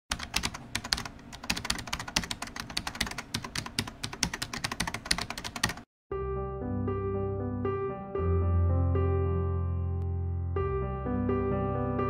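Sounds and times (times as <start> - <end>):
keyboard typing clicks: 0.1 - 5.9
piano music: 6.1 - 12.0.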